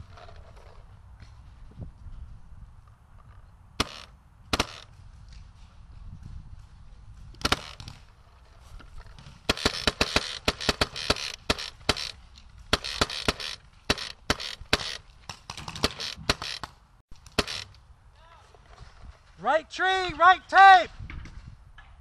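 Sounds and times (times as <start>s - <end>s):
paintball markers firing: 3.8s - 5.5s, 7.4s - 8.1s, 9.1s - 17.7s.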